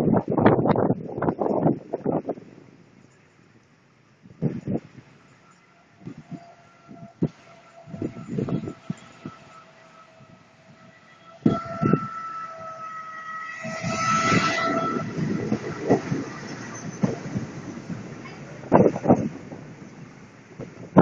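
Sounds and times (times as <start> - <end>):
locomotive passing: 0.0 - 21.0
train horn: 5.2 - 18.5.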